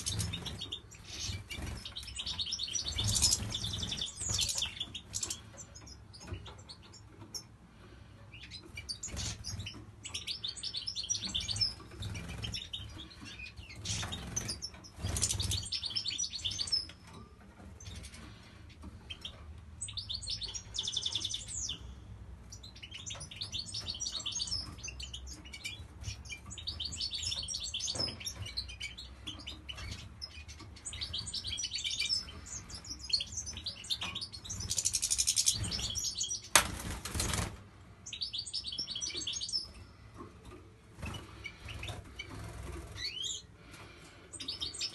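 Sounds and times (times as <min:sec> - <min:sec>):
finches chirping: 0:00.0 - 0:21.9, 0:22.5 - 0:37.4, 0:38.0 - 0:44.9
wings fluttering: 0:36.5 - 0:37.6.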